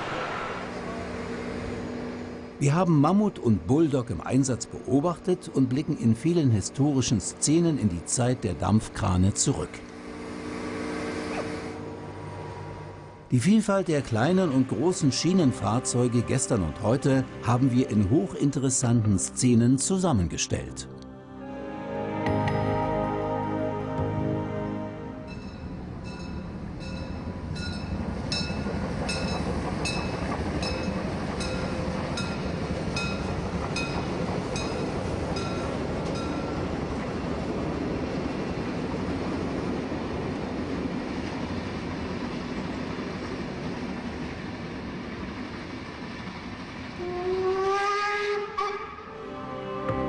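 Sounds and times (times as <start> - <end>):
train rumbling past: 0.0 - 20.8, 22.3 - 49.5
rising pitched tone: 21.2 - 27.2.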